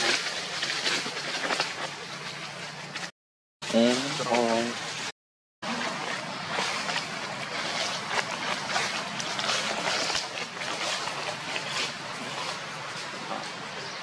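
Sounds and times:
crackles and rustles: 0.0s - 3.1s.

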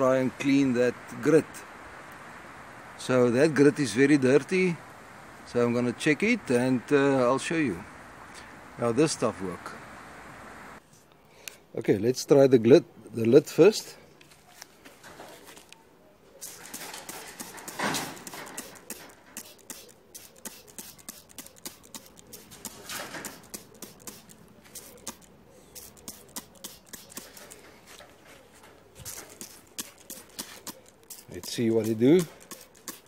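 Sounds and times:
spray bottle spraying: 16.4s - 27.6s, 29.1s - 33.0s.

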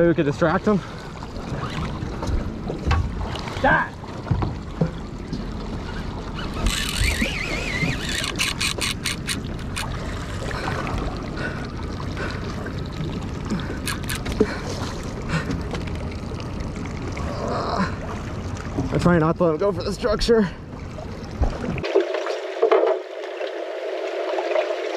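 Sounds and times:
water around a boat: 0.0s - 24.9s
fishing reel hissing whine: 6.3s - 9.9s, 13.8s - 14.3s
fishing reel clicks: 6.4s - 9.9s, 13.8s - 14.4s.

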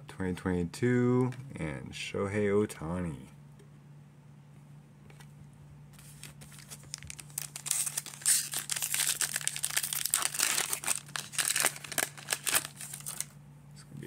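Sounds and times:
foil wrapper tearing and crinkling: 6.0s - 13.3s.

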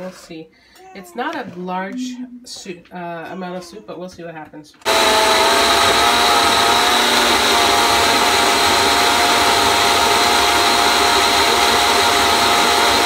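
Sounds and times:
blender motor whirring: 4.9s - 13.0s.

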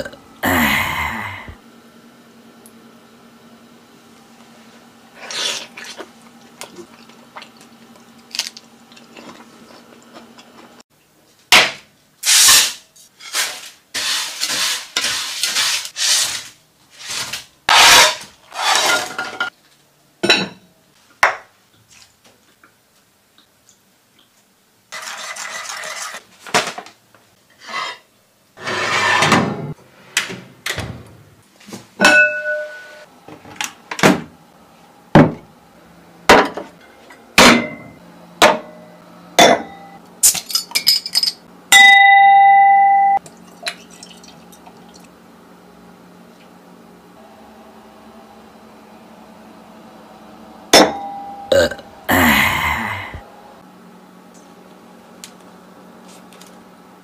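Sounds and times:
pots and utensils clanking: 18.0s - 19.5s.

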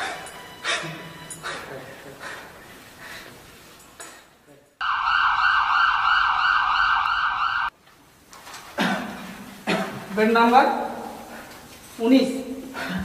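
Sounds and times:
ambulance siren warbling: 4.8s - 7.7s.

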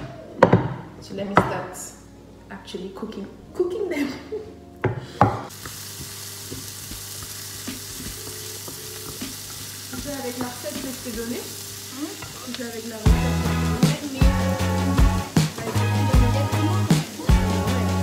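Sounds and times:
vegetables sizzling in a frying pan: 5.5s - 18.0s
loud music: 13.1s - 18.0s.

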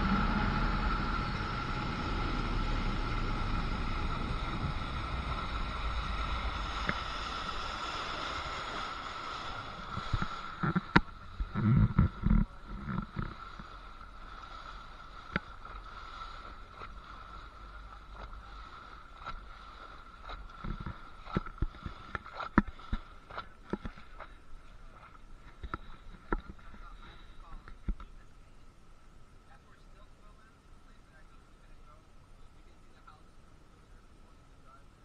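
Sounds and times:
faint whine and wash: 0.0s - 35.0s
water slapping against boat hull: 2.6s - 26.9s.

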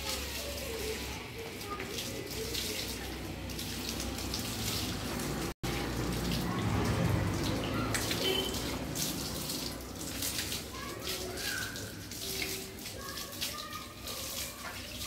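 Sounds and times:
water splashing from garden hose: 0.0s - 15.0s.

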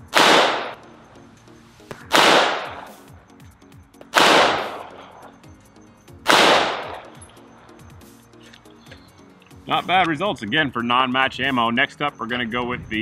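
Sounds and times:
pistol shots: 0.0s - 0.9s, 2.1s - 3.0s, 4.1s - 5.0s, 6.2s - 7.2s.

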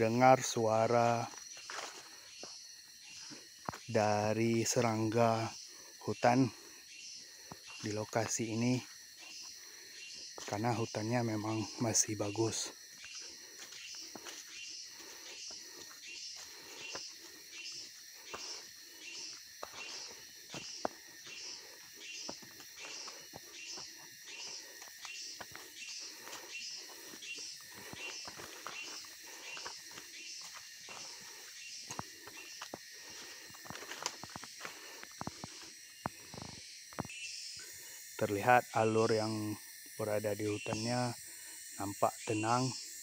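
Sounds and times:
footsteps on a leafy trail: 0.0s - 6.0s, 6.6s - 37.1s
insects chirring: 0.0s - 43.0s.

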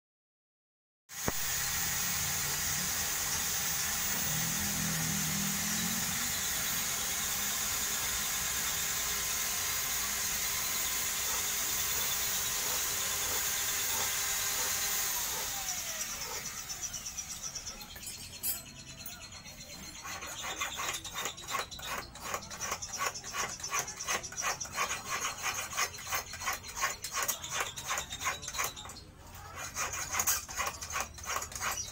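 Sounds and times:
mechanical hiss: 1.2s - 6.4s.

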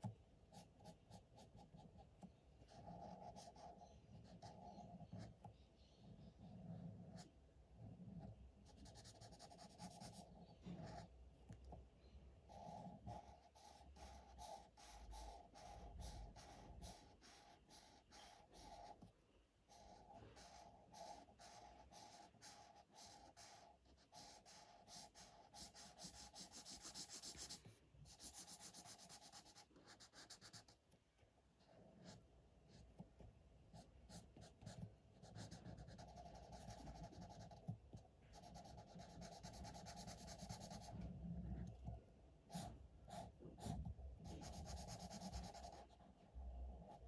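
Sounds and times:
marker scratching on paper: 2.7s - 5.5s, 8.6s - 11.1s, 12.5s - 19.1s, 19.7s - 30.8s, 33.8s - 41.0s, 42.5s - 46.0s.

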